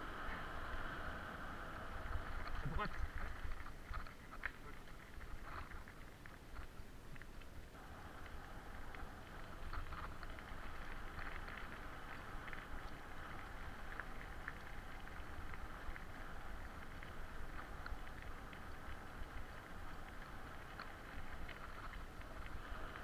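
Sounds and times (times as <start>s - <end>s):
bicycle tyres rumbling: 0.0s - 23.0s
faint ticks: 1.9s - 23.0s.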